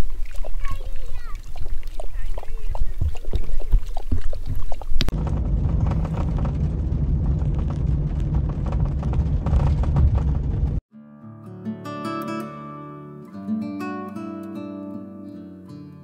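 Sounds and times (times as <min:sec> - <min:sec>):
dog lapping water: 0:00.0 - 0:05.1
van engine and tyres rumbling: 0:04.7 - 0:10.8
strummed acoustic guitar music: 0:10.9 - 0:16.0.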